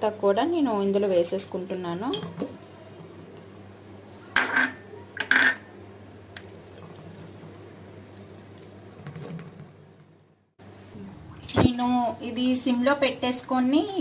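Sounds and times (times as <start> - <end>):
glass clinking on metal: 4.4 - 5.7.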